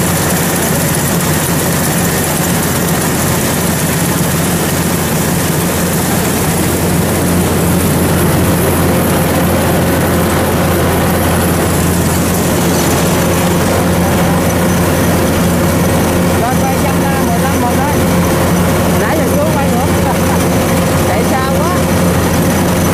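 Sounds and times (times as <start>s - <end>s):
diesel engine running: 0.0s - 22.9s
threshing machinery running: 0.0s - 22.9s.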